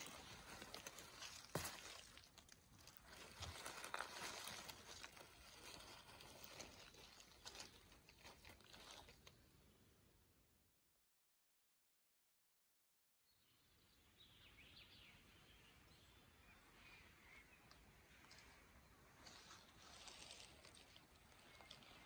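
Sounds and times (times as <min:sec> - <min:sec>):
dry leaves crackling and rustling: 0:00.0 - 0:09.3, 0:19.2 - 0:22.0.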